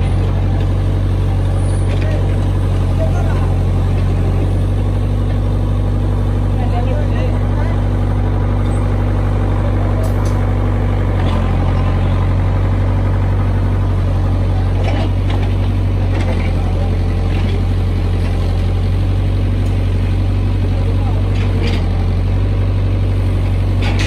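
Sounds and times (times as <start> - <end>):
large engine idling: 0.0 - 24.0.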